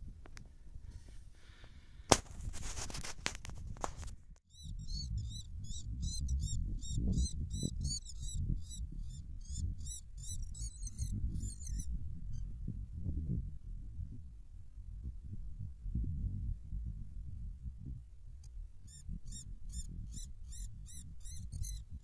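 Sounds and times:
wind rumble on microphone: 0.0 - 22.0
rustling of bird in net: 2.2 - 4.1.

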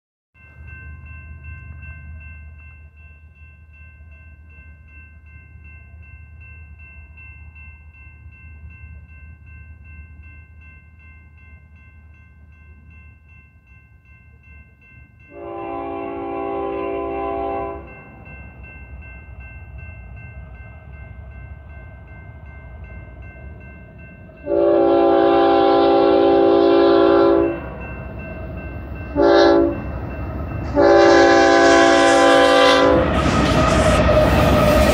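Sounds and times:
low train rumble: 0.4 - 34.9
train air horn blasts: 15.3 - 17.9, 24.4 - 27.6, 29.2 - 29.8, 30.6 - 34.9.

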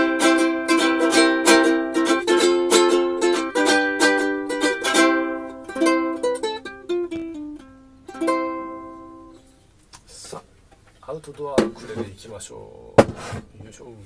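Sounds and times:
ukulele strummed and plucked: 0.0 - 9.6.

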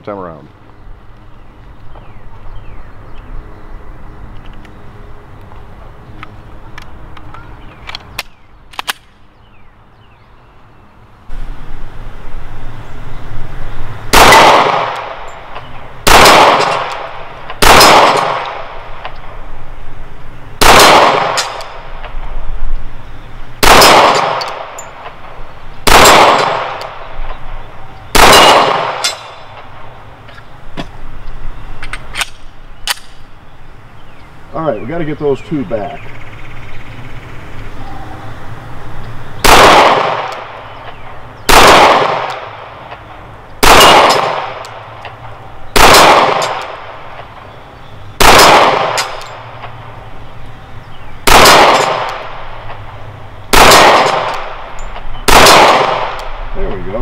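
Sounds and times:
pistol shots: 14.1 - 15.3, 16.0 - 18.8, 20.6 - 21.8, 23.6 - 24.8, 25.8 - 27.1, 28.1 - 29.7, 39.4 - 40.6, 41.5 - 43.0, 43.6 - 44.8, 45.7 - 46.9, 48.2 - 49.8, 51.2 - 52.4, 53.5 - 56.3.

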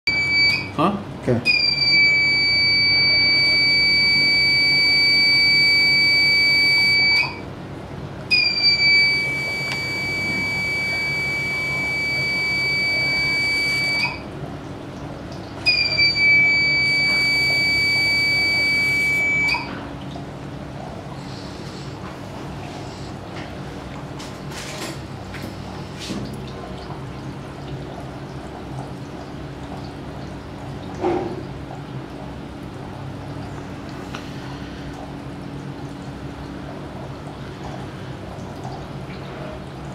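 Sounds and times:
loud high electronic beep: 8.3 - 14.2.

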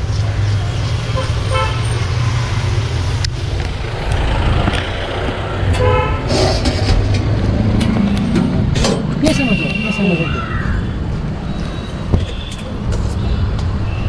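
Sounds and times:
low traffic rumble: 0.0 - 14.0
vehicle horn honking: 1.2 - 1.9, 5.8 - 6.3, 9.3 - 10.3.

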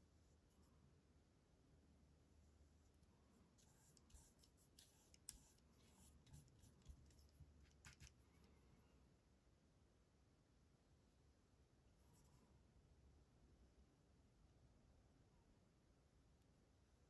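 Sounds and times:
paintbrush strokes on paper: 2.6 - 8.6.

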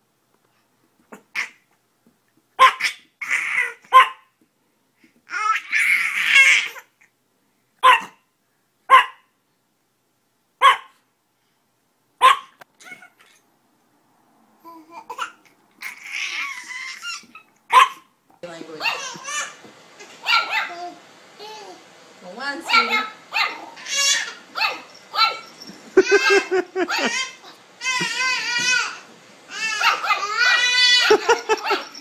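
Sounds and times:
baby laughing and squealing: 2.6 - 3.9, 5.3 - 6.9, 12.8 - 13.4, 14.7 - 17.6, 18.9 - 20.7, 23.4 - 32.0
small dog yapping: 2.6 - 4.3, 7.8 - 8.2, 8.9 - 9.3, 10.6 - 11.0, 12.2 - 13.4, 15.8 - 18.1, 18.8 - 20.8, 22.7 - 27.6, 29.5 - 31.9.

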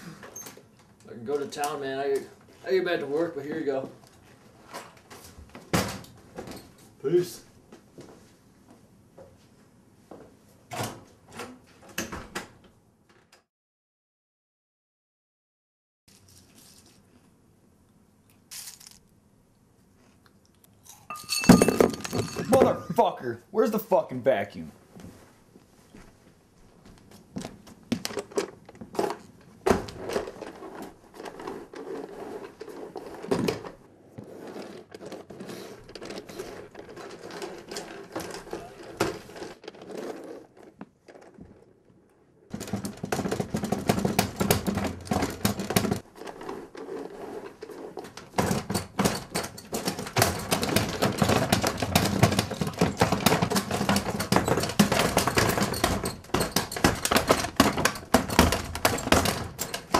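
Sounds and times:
knocks and clatter: 21.1 - 23.0, 42.5 - 46.5, 47.9 - 59.9.

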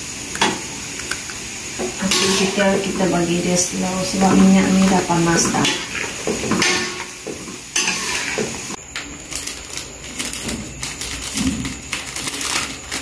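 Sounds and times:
food frying in hot oil: 0.0 - 13.0
spatula stirring in wok: 1.8 - 8.8
plastic bag crinkling: 9.0 - 13.0.

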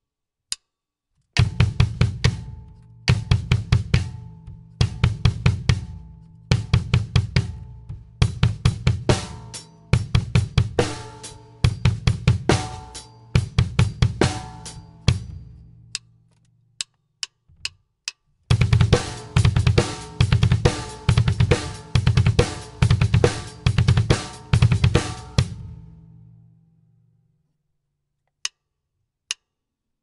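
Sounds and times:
rapid double bass drum strokes: 1.4 - 15.5, 18.5 - 25.9
count-in clicks: 15.9 - 18.3.

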